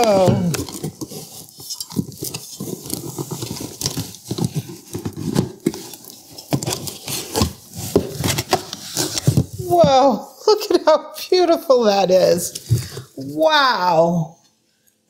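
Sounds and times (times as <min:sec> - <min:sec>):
packaging rustling and tapping: 0:00.0 - 0:10.0.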